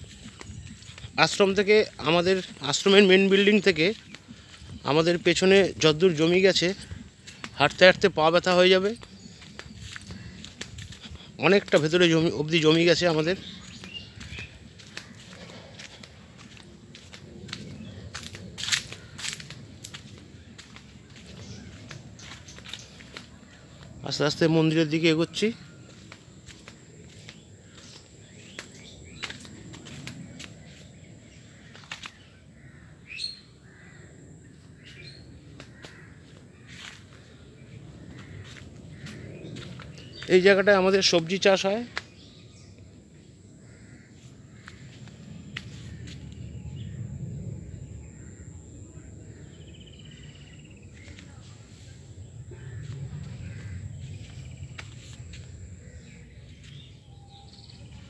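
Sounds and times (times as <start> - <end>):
footsteps on leaf litter: 0.0 - 32.3, 34.8 - 42.2, 44.2 - 46.5, 50.8 - 58.0
birds chirping: 0.0 - 58.0
low rumble: 44.4 - 58.0.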